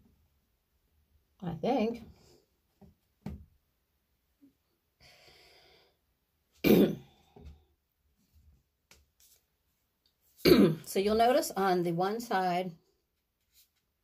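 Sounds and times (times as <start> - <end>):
woman coughing: 6.6 - 7.1, 10.4 - 10.9.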